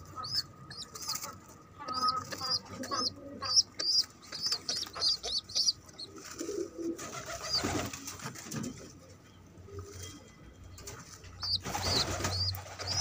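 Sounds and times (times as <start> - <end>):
pigeon squabs peeping: 0.0 - 7.9, 11.4 - 13.0
rough throaty pigeon sounds: 0.0 - 13.0.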